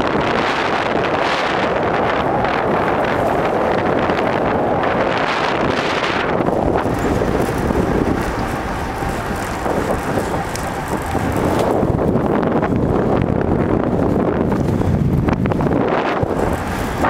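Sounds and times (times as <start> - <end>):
wind noise on microphone: 0.0 - 17.0.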